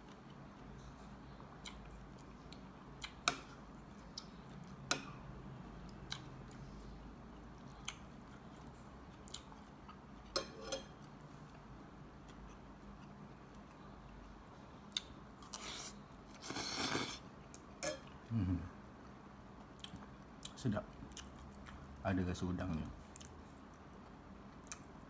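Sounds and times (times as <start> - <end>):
quiet chewing: 0.0 - 5.0, 5.8 - 10.4, 11.0 - 22.0, 23.0 - 25.0
cutlery clinking on glass bowl: 10.3 - 11.0.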